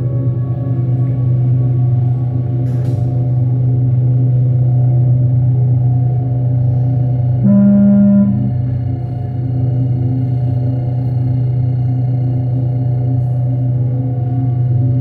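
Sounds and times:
electronic drone music: 7.4s - 9.2s.

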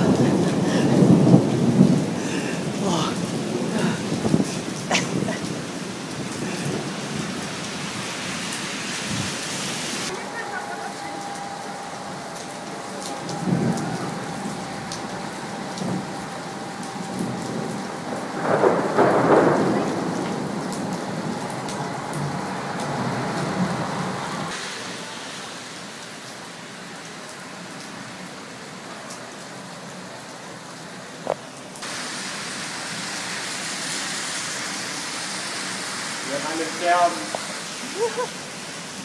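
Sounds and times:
thunder rumbling: 0.0s - 9.4s, 10.0s - 25.2s
heavy rain falling: 0.0s - 39.0s.

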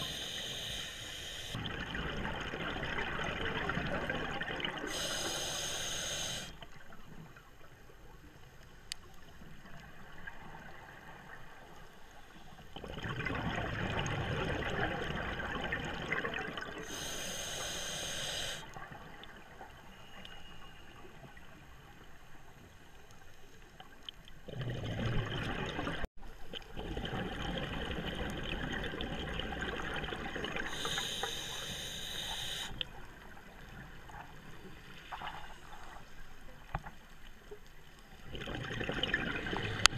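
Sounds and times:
regulator hiss: 0.0s - 1.6s, 4.9s - 6.6s, 16.9s - 18.6s, 30.7s - 32.8s
underwater exhale bubbling: 12.8s - 19.0s, 24.5s - 26.1s, 26.7s - 32.8s, 38.2s - 39.9s.

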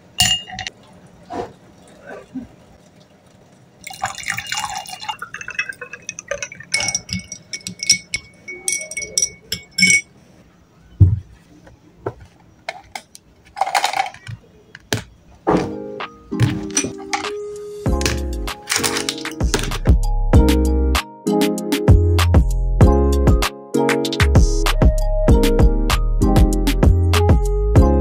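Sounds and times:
metal stirrer clinking glass: 0.2s - 0.7s, 3.8s - 10.2s, 16.5s - 17.3s, 17.9s - 19.8s
liquid poured over ice: 3.3s - 8.1s.

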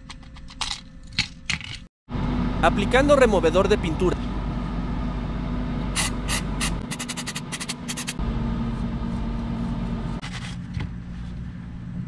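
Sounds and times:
low hum: 4.2s - 12.0s
brush scrubbing paint: 6.0s - 8.2s.

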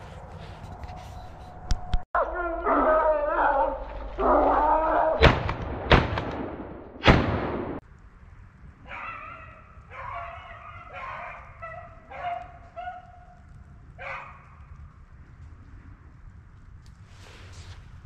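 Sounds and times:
shotgun shots with echo: 5.2s - 7.8s
dogs baying: 8.9s - 13.4s, 14.0s - 14.6s.

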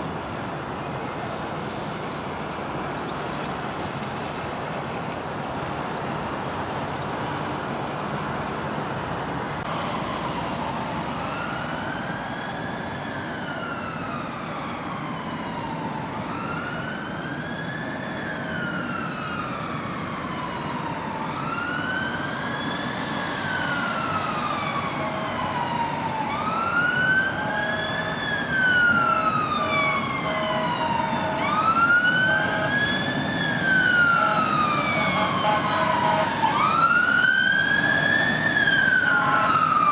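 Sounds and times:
road traffic hiss: 0.0s - 39.9s
emergency siren wailing: 9.6s - 39.9s.

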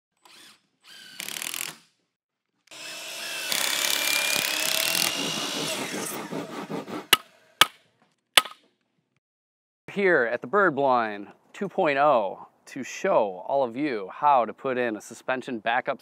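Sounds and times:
power tool working wood: 2.7s - 7.2s.

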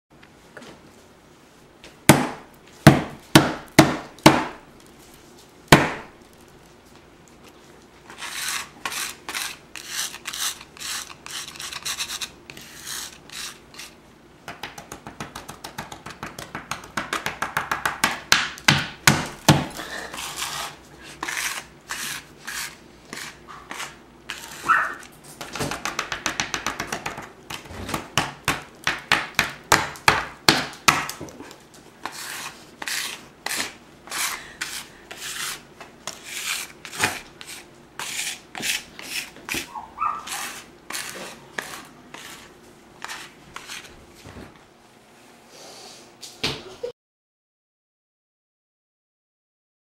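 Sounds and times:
card scraping crumbs on wood: 8.1s - 14.0s, 20.2s - 25.1s, 32.0s - 44.0s.

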